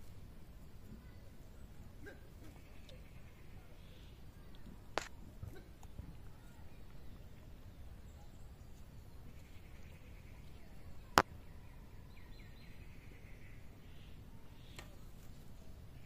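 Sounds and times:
faint outdoor background noise: 0:00.0 - 0:16.0
sharp click: 0:05.0 - 0:05.2.

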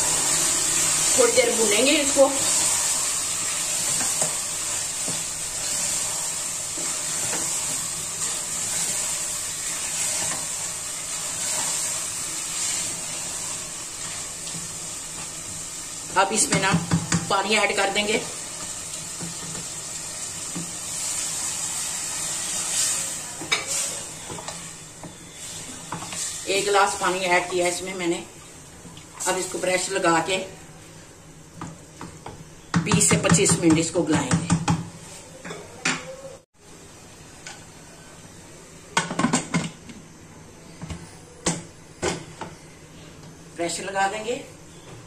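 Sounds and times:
masala sizzling in pot: 0:00.0 - 0:35.4, 0:36.6 - 0:45.0.

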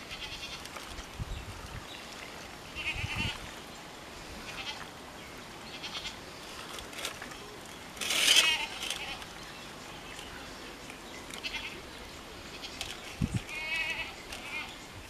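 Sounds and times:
animal bleats: 0:00.0 - 0:00.6, 0:04.5 - 0:04.8, 0:05.7 - 0:06.2, 0:08.2 - 0:09.2, 0:11.4 - 0:11.8, 0:13.5 - 0:14.7.

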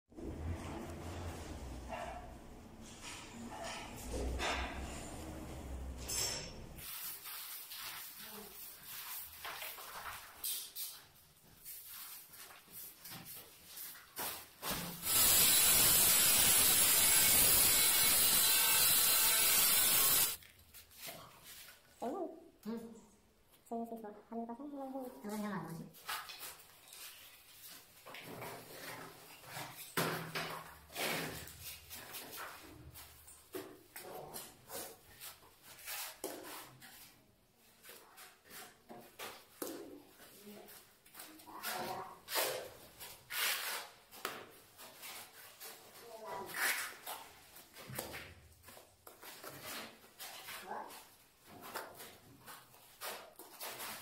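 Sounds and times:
angle grinder cutting tile: 0:15.0 - 0:20.4.

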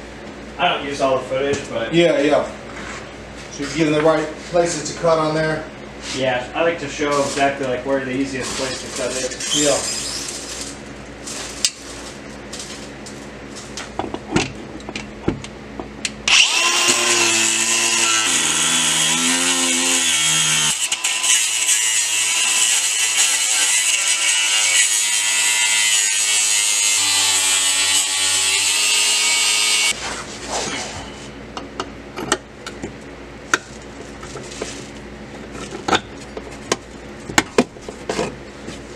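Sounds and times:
grinder cutting through steel: 0:09.4 - 0:10.4, 0:16.3 - 0:30.0.

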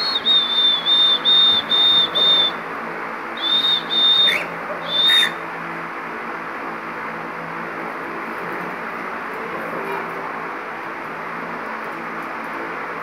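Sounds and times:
cockatiel whistling: 0:00.0 - 0:02.6, 0:03.4 - 0:05.4.

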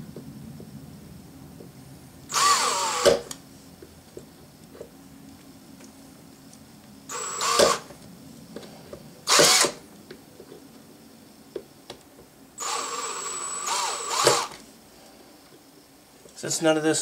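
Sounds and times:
hammer drill whine: 0:02.3 - 0:03.4, 0:07.1 - 0:07.9, 0:09.3 - 0:09.8, 0:12.6 - 0:14.6.

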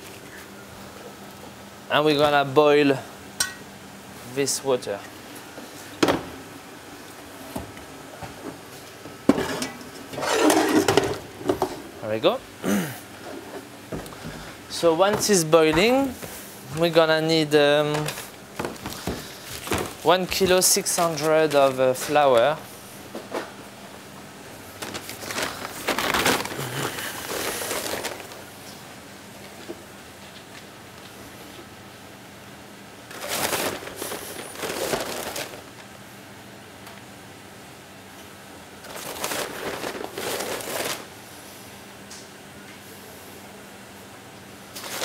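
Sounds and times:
paper sack crinkling: 0:14.8 - 0:22.5, 0:24.7 - 0:28.6, 0:33.1 - 0:35.8, 0:38.8 - 0:41.1, 0:44.7 - 0:45.0.

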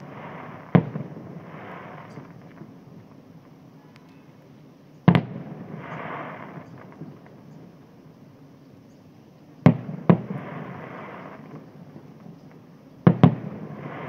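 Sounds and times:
fireworks bangs: 0:00.0 - 0:03.1, 0:05.0 - 0:07.5, 0:09.6 - 0:12.3, 0:13.0 - 0:14.0
fireworks rushing crackle: 0:00.0 - 0:03.6, 0:05.1 - 0:07.5, 0:09.6 - 0:14.0.

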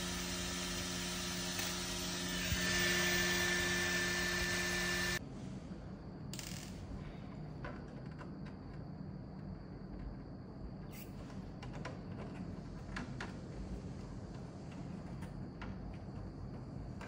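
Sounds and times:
steady whine: 0:00.0 - 0:07.2.

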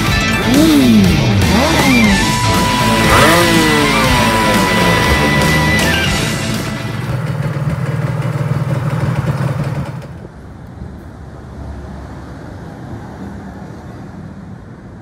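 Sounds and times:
loud low hum: 0:00.0 - 0:08.5
minibike engine idling: 0:00.0 - 0:10.3.

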